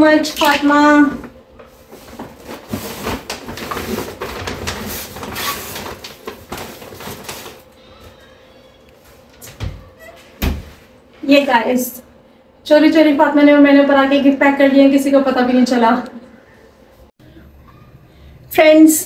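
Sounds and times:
gift bag rustling: 1.8 - 7.7.

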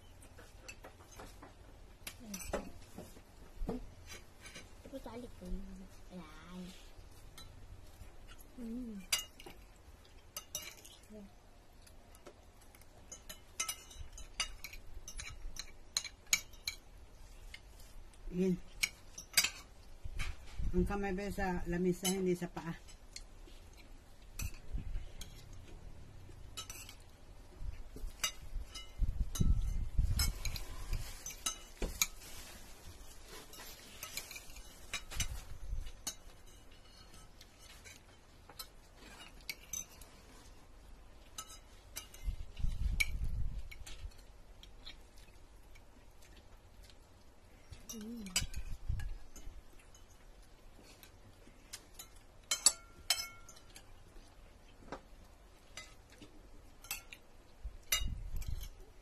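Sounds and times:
cutlery clinking on plates: 12.2 - 16.9, 18.8 - 20.3, 33.3 - 40.2, 41.2 - 44.2, 50.8 - 54.0, 54.9 - 57.2, 57.8 - 58.8.

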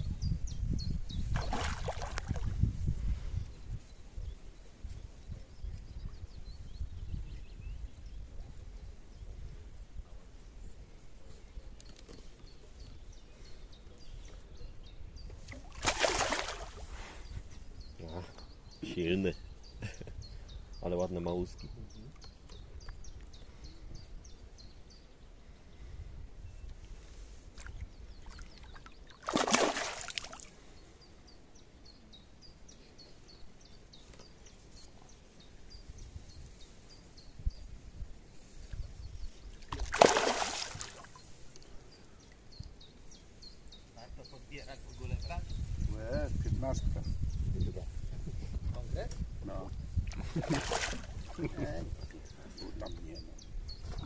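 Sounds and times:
small bird singing: 0.0 - 2.6, 10.4 - 15.6, 16.4 - 26.8, 30.2 - 40.1, 40.7 - 50.0, 51.0 - 54.0
fish splashing in water: 1.3 - 2.6, 15.5 - 16.8, 28.2 - 30.5, 39.7 - 41.2, 50.1 - 51.5.

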